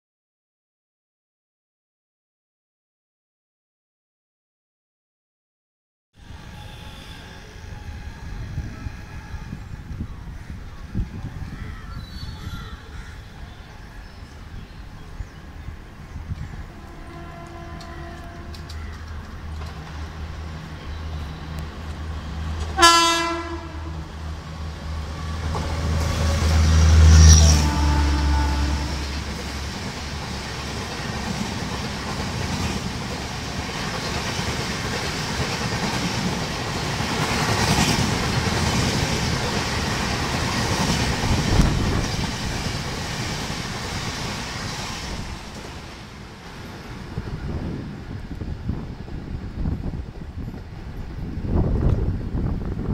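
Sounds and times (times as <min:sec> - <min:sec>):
train horn blast: 0:06.4 - 0:07.9, 0:16.6 - 0:18.8, 0:22.6 - 0:24.1, 0:25.4 - 0:29.3
train wheels rumbling and clattering: 0:15.0 - 0:52.9.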